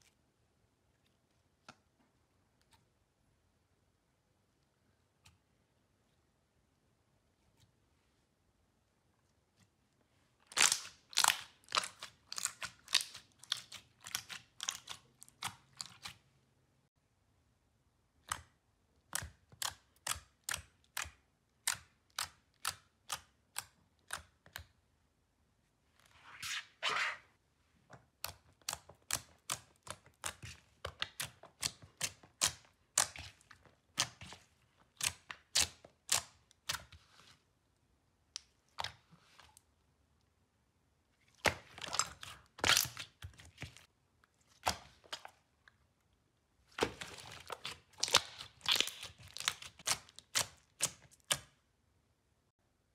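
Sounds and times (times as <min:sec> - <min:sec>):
slime crackling: 0:10.5 - 0:16.2, 0:46.8 - 0:51.4.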